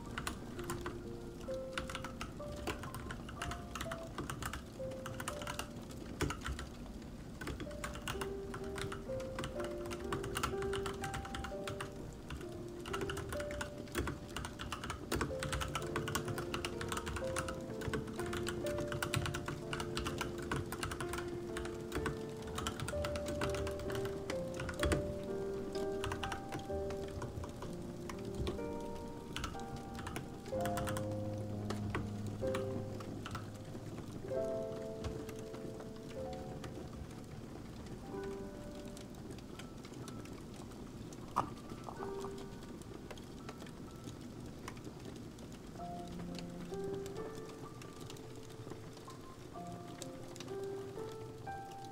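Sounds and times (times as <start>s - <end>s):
mechanical keyboard typing: 0.0s - 6.8s, 7.4s - 40.7s
soft background music: 0.0s - 51.9s.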